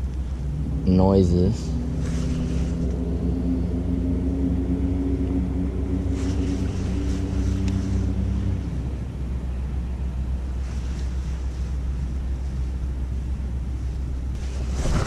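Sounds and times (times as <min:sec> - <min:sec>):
distant engine droning: 0:00.0 - 0:15.0
low microphone rumble: 0:00.0 - 0:15.0
rain jacket rustling: 0:06.1 - 0:08.2, 0:14.4 - 0:15.0.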